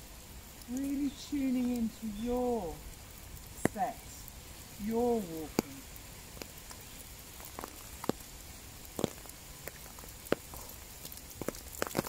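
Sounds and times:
light rain hissing: 0:00.0 - 0:12.0
raindrops ticking: 0:00.0 - 0:12.0.

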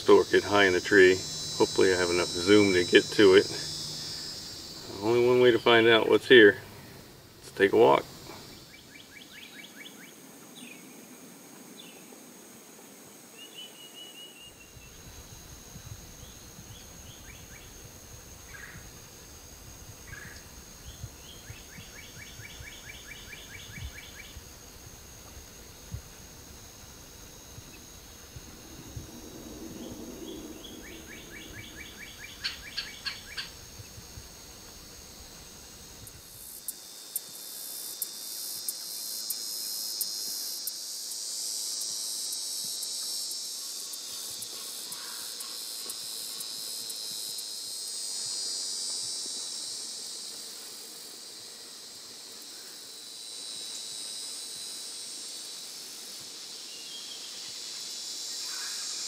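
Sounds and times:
faint high insect whine: 0:00.0 - 0:59.0
insects trilling chorus: 0:00.0 - 0:59.0
low rumble: 0:27.8 - 0:32.6
bird call notes: 0:29.8 - 0:33.6.

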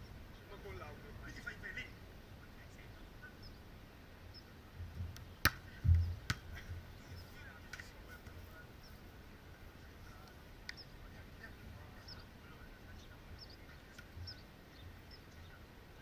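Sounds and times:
hand smacking volleyball: 0:05.4 - 0:06.5.

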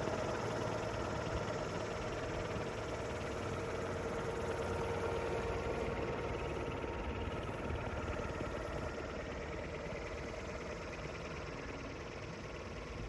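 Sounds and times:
air propeller motor droning: 0:00.0 - 0:13.0.

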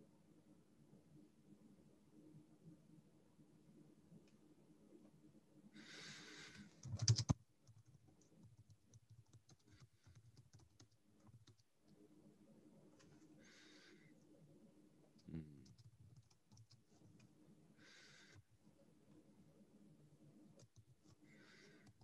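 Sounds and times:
keyboard typing: 0:06.8 - 0:11.7, 0:15.6 - 0:17.3, 0:20.6 - 0:21.1.

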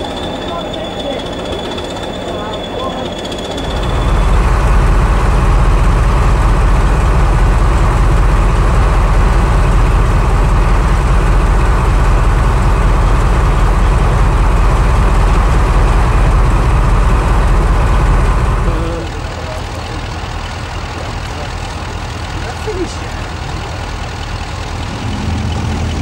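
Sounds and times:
diesel locomotive engine droning: 0:00.0 - 0:26.0.

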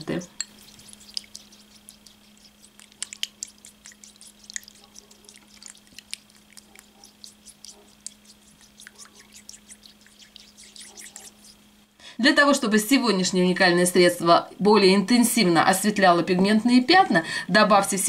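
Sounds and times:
spoon stirring liquid: 0:00.0 - 0:11.6
spoon clicking against glass: 0:00.4 - 0:01.4.

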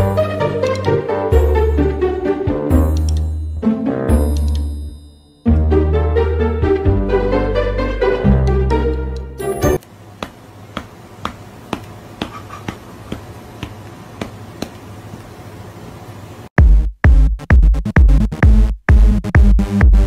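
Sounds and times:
electronic track with heavy bass: 0:16.6 - 0:20.0.

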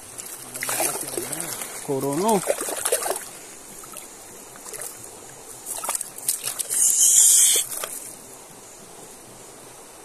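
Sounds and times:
hissing splash of water: 0:05.6 - 0:08.2.

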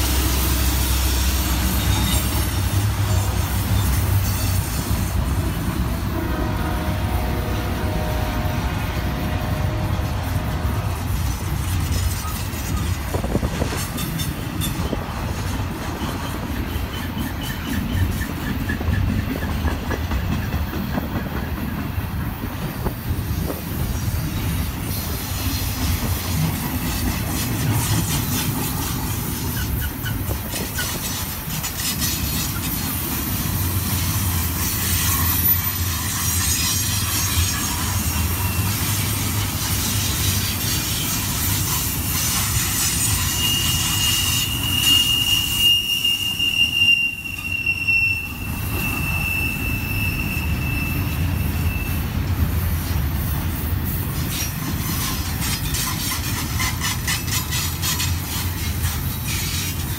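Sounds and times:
high wheel squeal: 0:00.0 - 0:05.7, 0:15.9 - 0:19.5, 0:26.8 - 0:52.2
train wheels rumbling on rails: 0:00.0 - 0:59.9.

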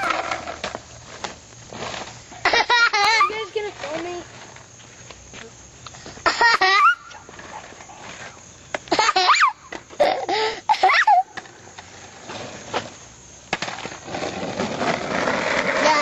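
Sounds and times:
toddler squealing and laughing: 0:06.2 - 0:07.3, 0:08.9 - 0:11.4.

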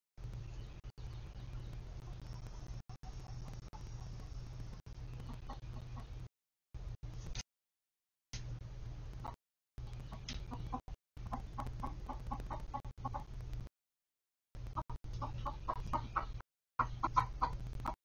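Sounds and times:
steady low hum: 0:00.2 - 0:07.4, 0:08.4 - 0:13.7
chickens clucking: 0:01.5 - 0:06.3, 0:09.2 - 0:13.4, 0:14.7 - 0:18.0.

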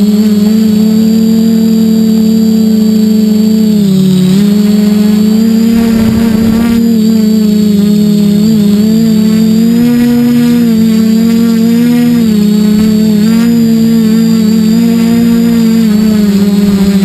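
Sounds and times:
drone propellers humming: 0:00.0 - 0:17.0
high motor whine: 0:00.0 - 0:17.0.

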